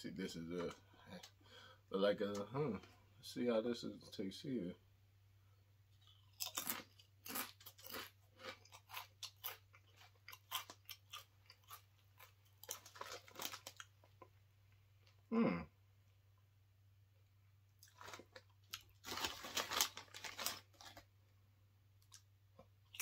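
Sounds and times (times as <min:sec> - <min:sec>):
crunching and chewing chips: 0:06.0 - 0:14.4, 0:17.7 - 0:21.1, 0:22.0 - 0:23.0.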